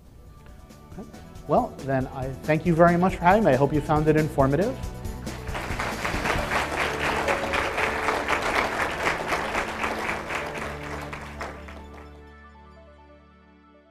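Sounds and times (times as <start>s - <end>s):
soft outro music: 0.1s - 13.5s
audience applauding: 5.3s - 12.2s.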